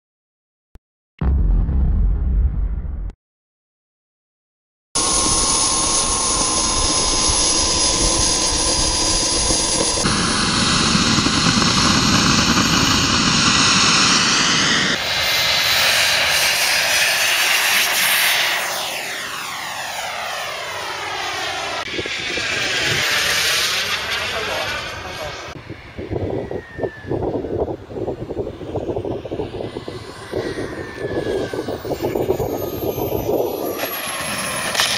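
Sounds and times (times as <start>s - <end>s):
model jet engine whine: 5.0s - 34.9s.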